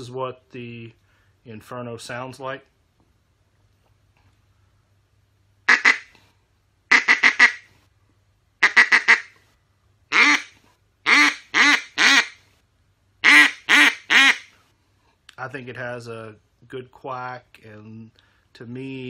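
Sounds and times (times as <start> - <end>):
duck call quacks: 5.7 - 6.1, 6.9 - 7.7, 8.6 - 9.4, 10.1 - 12.4, 13.2 - 14.5.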